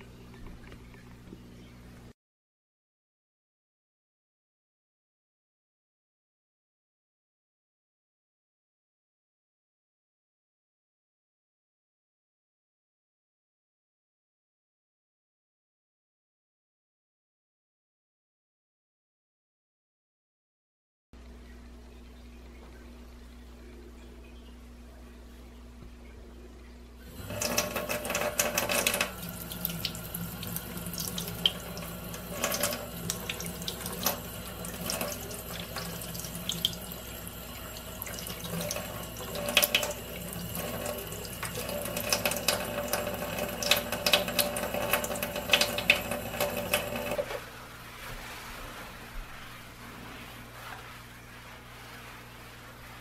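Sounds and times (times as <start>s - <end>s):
tap water splashing into sink: 27.1s - 47.4s.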